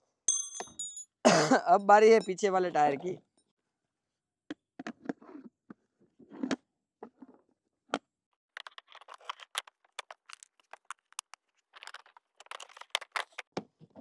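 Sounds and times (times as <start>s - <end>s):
plastic wheel and metal axle clicking: 8.6s - 13.5s.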